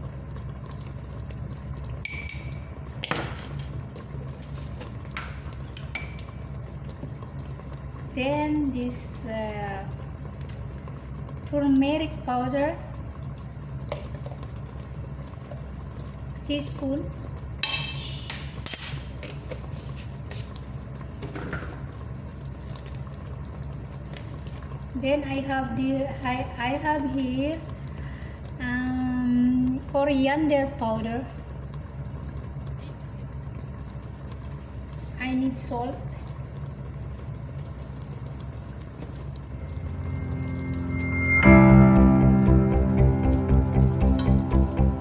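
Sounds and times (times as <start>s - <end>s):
sauce simmering in pot: 0.0s - 45.0s
steady low hum: 36.0s - 45.0s.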